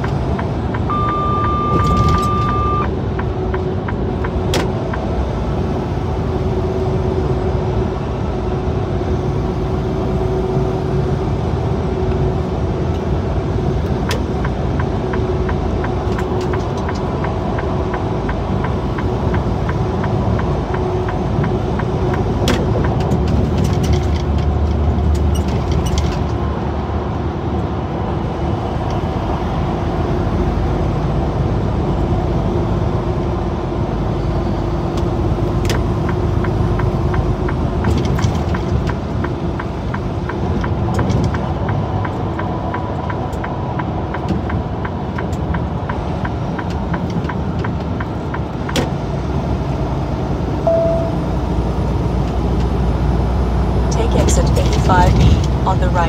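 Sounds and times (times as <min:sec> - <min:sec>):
road noise: 0:00.0 - 0:56.0
truck engine rumble: 0:00.0 - 0:56.0
short electronic beep: 0:00.9 - 0:02.9, 0:50.7 - 0:51.3.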